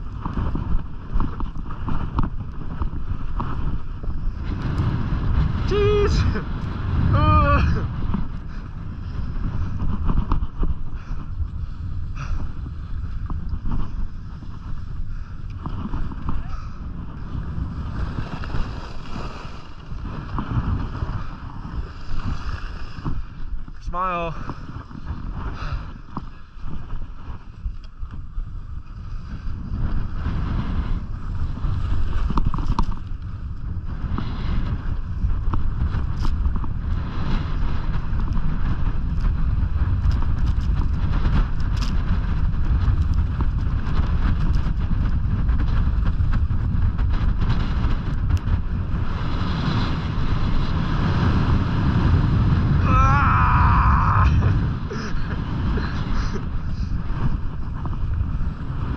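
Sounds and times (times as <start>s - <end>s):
wind rushing over microphone: 0.0s - 58.9s
skis scraping on snow: 11.6s - 23.8s, 28.4s - 52.8s, 54.4s - 58.9s.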